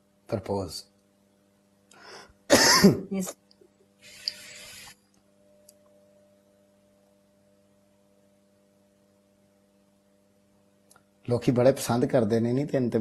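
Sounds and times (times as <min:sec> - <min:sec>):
faint electrical hum: 0:00.0 - 0:13.0
short hiss: 0:04.0 - 0:05.0.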